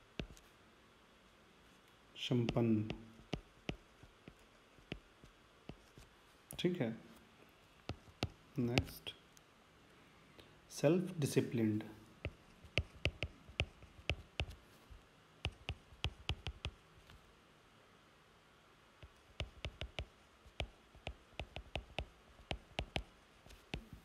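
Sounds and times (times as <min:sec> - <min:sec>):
stylus tapping on tablet screen: 0:00.0 - 0:00.5, 0:02.4 - 0:06.7, 0:07.8 - 0:09.0, 0:12.2 - 0:14.6, 0:15.4 - 0:16.8, 0:19.0 - 0:24.0.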